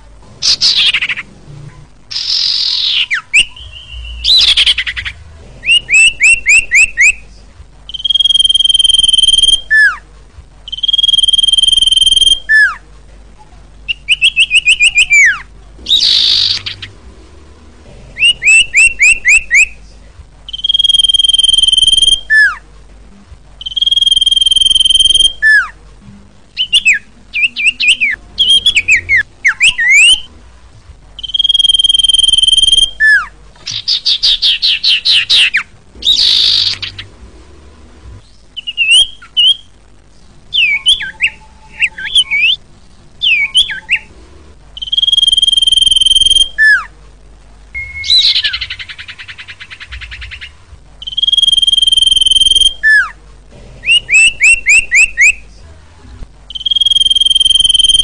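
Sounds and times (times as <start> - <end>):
bird chirping: 0.3 - 10.0, 10.6 - 12.8, 13.9 - 19.8, 20.4 - 22.6, 23.6 - 25.8, 26.5 - 30.4, 31.2 - 39.8, 40.5 - 42.6, 43.2 - 46.9, 47.8 - 55.4, 56.5 - 58.0
bird singing whistled notes: 0.4 - 1.3, 2.1 - 7.2, 7.9 - 10.0, 10.7 - 12.8, 13.9 - 17.0, 18.2 - 19.8, 20.5 - 22.6, 23.6 - 25.8, 26.6 - 30.3, 31.2 - 37.1, 38.6 - 39.7, 40.5 - 42.6, 43.2 - 44.1, 44.8 - 46.9, 47.8 - 53.2, 53.8 - 55.4, 56.5 - 58.0
harsh bird call: 0.4 - 1.3, 2.1 - 7.3, 13.9 - 17.1, 18.2 - 19.8, 26.6 - 30.3, 31.2 - 37.2, 47.8 - 53.2.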